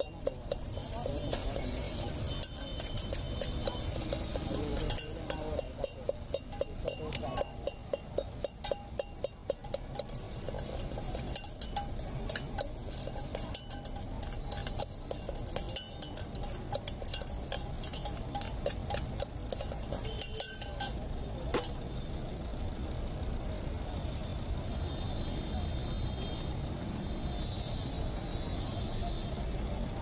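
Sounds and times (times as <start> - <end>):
spoon clinking in metal container: 0.0 - 21.8.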